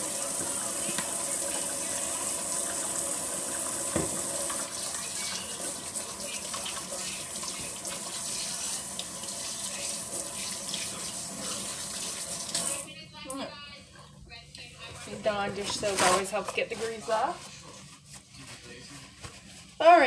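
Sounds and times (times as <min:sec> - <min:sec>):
faucet running into sink: 0:00.0 - 0:12.9
knock: 0:03.9 - 0:04.2.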